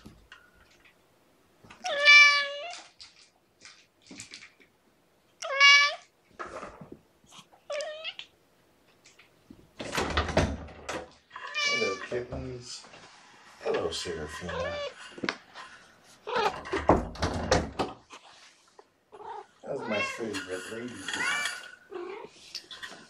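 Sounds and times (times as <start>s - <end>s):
cats meowing: 1.7s - 3.2s, 5.4s - 6.1s, 7.6s - 8.4s, 11.3s - 12.3s, 13.7s - 15.1s, 16.2s - 17.0s, 19.1s - 22.6s.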